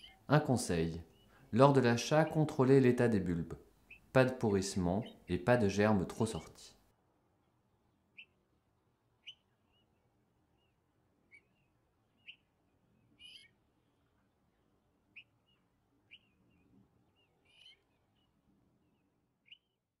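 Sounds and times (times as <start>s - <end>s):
high bird chirps: 0.0s - 0.2s, 3.8s - 4.2s, 9.2s - 10.0s, 10.6s - 13.6s, 15.1s - 19.8s
harsh bird calls: 0.0s - 2.8s, 3.8s - 6.6s, 11.3s - 13.6s, 15.1s - 19.7s.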